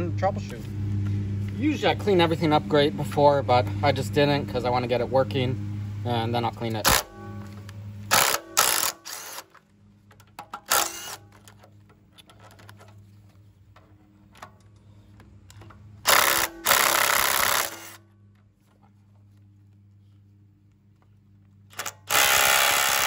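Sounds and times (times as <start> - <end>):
cordless driver running: 8.1 - 9.6, 10.6 - 11.6, 15.6 - 18.0, 21.7 - 23.0.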